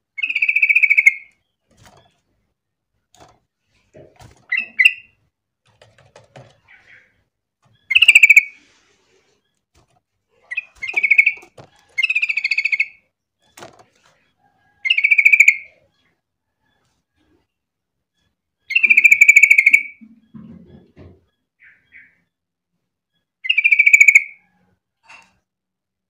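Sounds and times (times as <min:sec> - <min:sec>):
bird chattering song: 0:00.2 - 0:02.1, 0:04.5 - 0:05.2, 0:06.4 - 0:08.6, 0:10.4 - 0:13.0, 0:14.2 - 0:16.1, 0:18.7 - 0:20.4, 0:21.6 - 0:22.2, 0:23.4 - 0:24.4.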